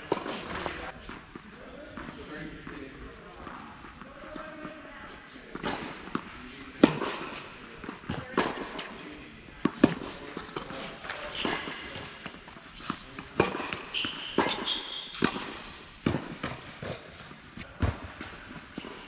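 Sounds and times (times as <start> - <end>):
tennis ball strikes and bounces: 5.6 - 9.0, 9.6 - 19.0.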